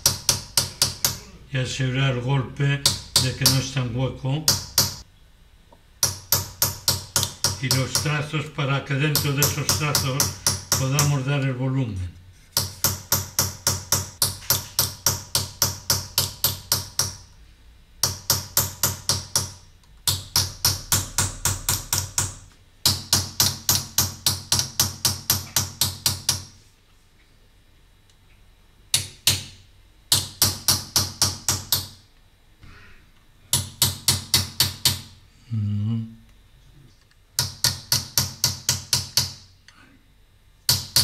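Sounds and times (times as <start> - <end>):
hammer tapping metal punch: 0.0 - 1.3, 6.0 - 8.3, 9.1 - 11.2, 12.6 - 17.2, 18.0 - 26.5.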